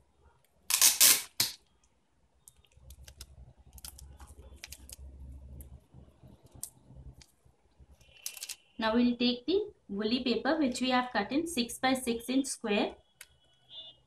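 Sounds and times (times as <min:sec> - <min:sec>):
cellophane crinkling: 0:02.6 - 0:05.2.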